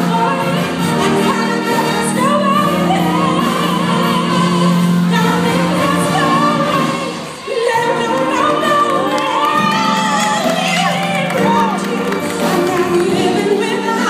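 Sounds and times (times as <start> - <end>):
concert band playing: 0.0 - 14.0
woman singing: 0.0 - 14.0.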